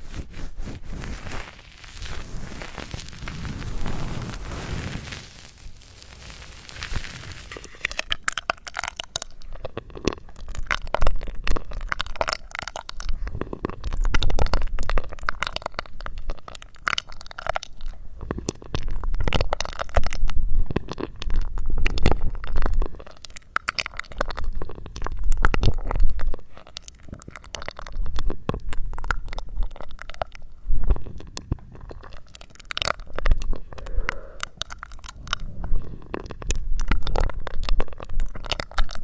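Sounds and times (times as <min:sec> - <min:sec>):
sucking air through a straw: 0:00.0 - 0:16.5, 0:17.8 - 0:39.0.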